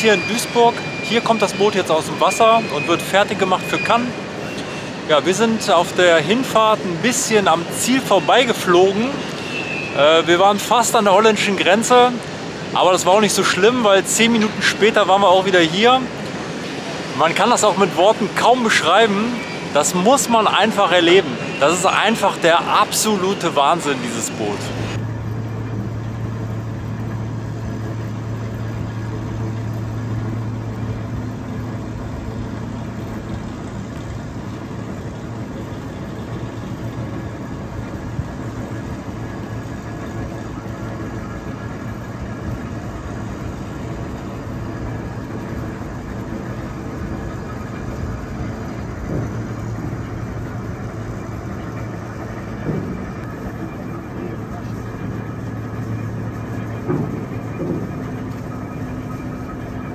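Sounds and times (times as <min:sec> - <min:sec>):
crane engine hum: 0:00.0 - 0:59.9
mechanical noise: 0:00.0 - 0:59.9.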